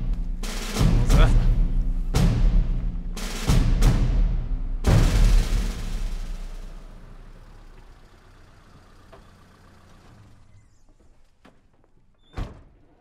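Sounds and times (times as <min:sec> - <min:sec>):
car engine rumble: 0:04.7 - 0:12.1.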